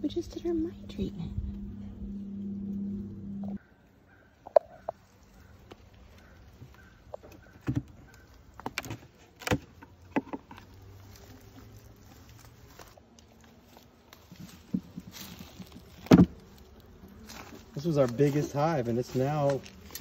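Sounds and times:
hive frames knocking on wooden box: 14.6s - 16.5s.

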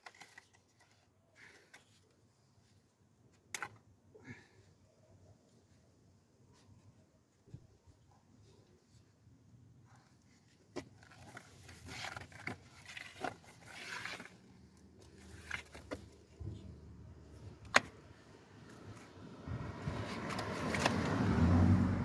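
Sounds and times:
handling scraping and rustling: 0.0s - 3.8s, 9.8s - 19.2s, 19.8s - 21.1s.

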